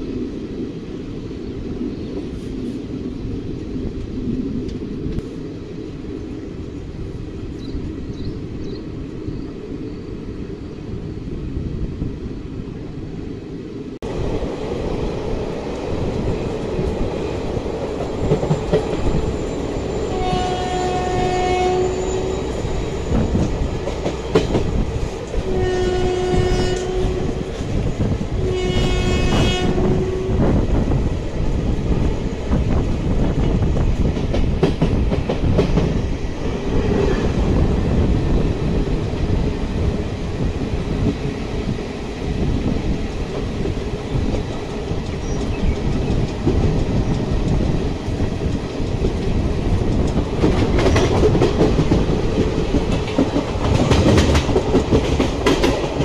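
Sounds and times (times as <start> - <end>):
train wheels rumbling and clattering: 13.2 - 56.0
locomotive horn blasts: 20.1 - 22.3, 25.4 - 27.4, 28.4 - 30.4.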